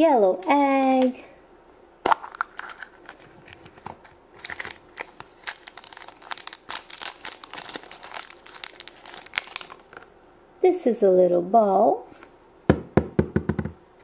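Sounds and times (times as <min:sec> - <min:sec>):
plastic wrapper crinkling and tearing: 0:02.1 - 0:10.2.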